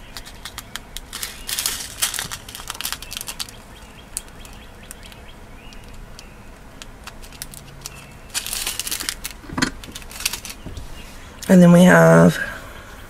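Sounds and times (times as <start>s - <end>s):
plastic bag crinkling: 0.0s - 11.0s
beads rattling in bag: 0.1s - 4.6s, 6.8s - 10.6s.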